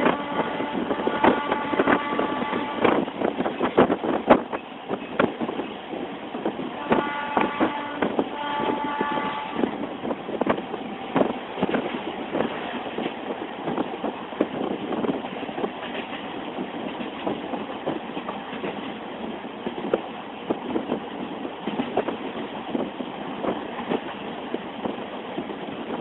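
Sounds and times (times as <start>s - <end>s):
train horn: 0.0s - 3.0s, 6.7s - 9.8s
train wheels clattering over rails: 0.0s - 26.0s.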